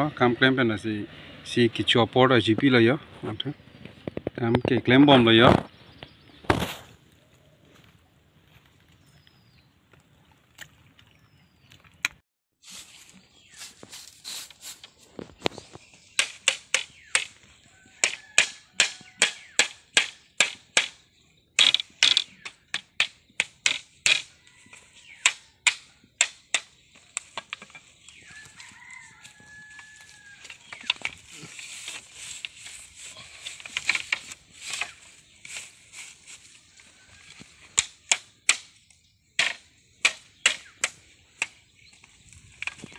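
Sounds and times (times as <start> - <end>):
rustling: 12.6 - 16.0, 26.9 - 37.8
hammering bamboo slats: 16.0 - 21.0, 21.6 - 24.4, 25.0 - 27.9, 29.7 - 35.7, 37.5 - 42.0.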